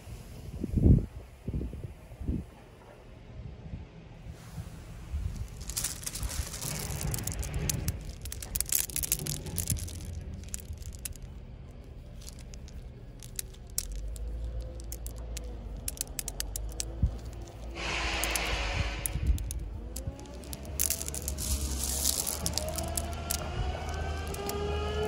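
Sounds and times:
gravel sliding onto pile: 4.4s - 25.0s
hand crunching gravel: 5.3s - 25.0s
stones clicking together: 5.4s - 25.0s.

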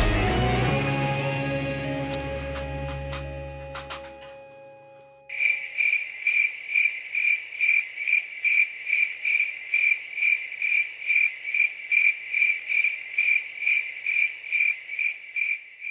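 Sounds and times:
insect chirping: 5.3s - 15.9s.

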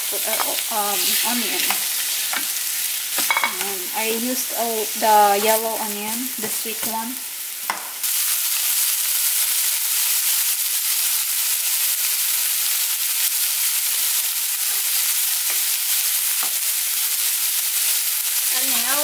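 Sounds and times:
onion frying in oil: 0.0s - 19.0s.

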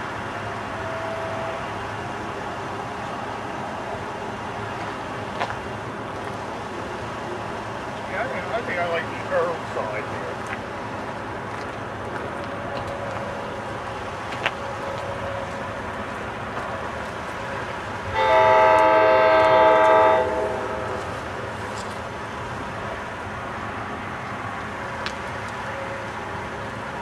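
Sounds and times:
train horn blast: 0.8s - 1.7s, 18.1s - 21.2s.

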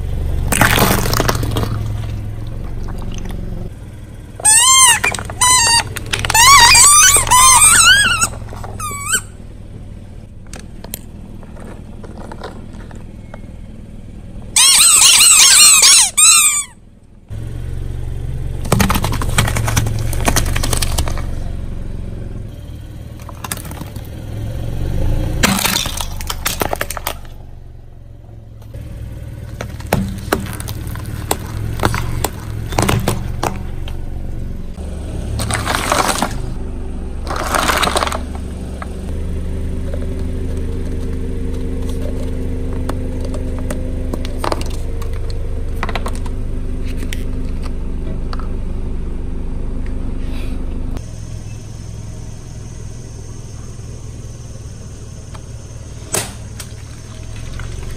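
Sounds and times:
rubber balls squealing: 0.0s - 10.3s, 11.0s - 17.0s, 18.5s - 39.2s
car engine humming: 0.0s - 57.9s
tyre crushing objects: 0.4s - 3.7s, 18.6s - 21.6s, 23.1s - 24.2s, 25.2s - 27.4s, 28.7s - 34.4s, 35.2s - 36.6s, 37.2s - 38.9s.

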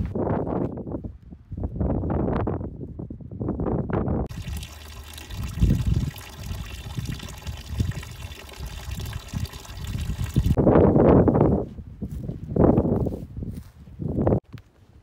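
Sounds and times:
water trickling into stone basin: 4.3s - 10.6s.

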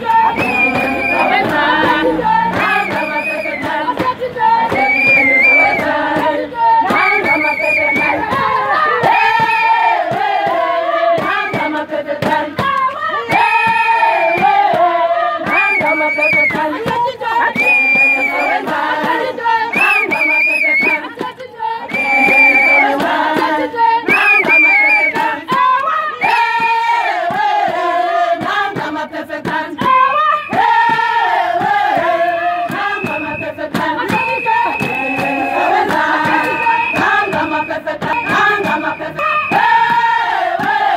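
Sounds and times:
crowd singing and chanting: 0.0s - 40.9s
whistle blasts: 0.2s - 1.5s, 2.7s - 3.8s, 4.8s - 5.8s, 6.9s - 8.2s, 15.5s - 16.6s, 17.6s - 18.6s, 19.7s - 21.0s, 21.9s - 22.9s, 24.1s - 25.2s, 32.2s - 39.9s.

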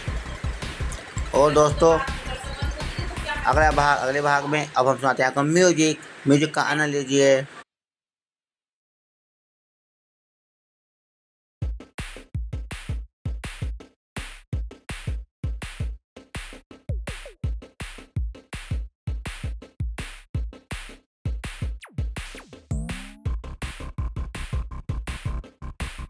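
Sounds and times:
electronic music with drum beat: 0.0s - 4.6s, 11.6s - 26.0s.

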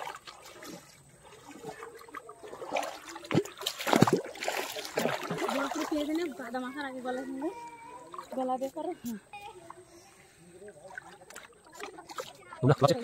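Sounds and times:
river water splashing: 0.0s - 13.0s.

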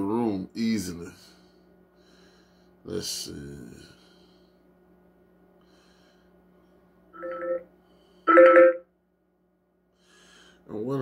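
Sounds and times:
phone ringtone bursts: 7.2s - 7.6s, 8.3s - 8.8s.

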